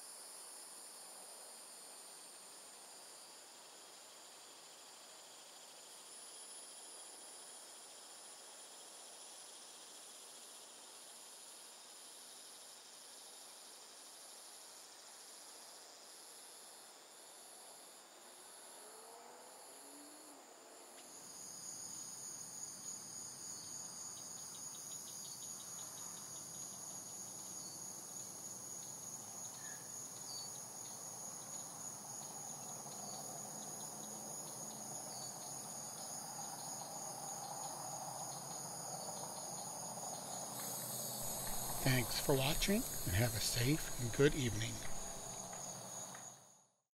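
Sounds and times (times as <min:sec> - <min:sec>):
insects trilling: 0:01.8 - 0:46.2
low background noise: 0:19.7 - 0:46.2.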